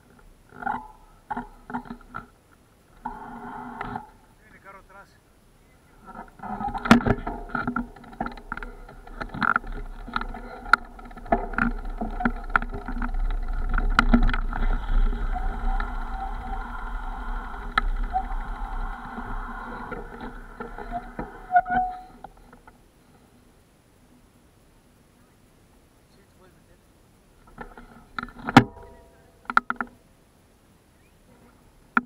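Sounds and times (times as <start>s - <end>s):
bike knocking and rattling: 0.0s - 3.2s, 6.0s - 22.9s, 27.4s - 30.0s
wind rumble on microphone: 6.0s - 22.5s.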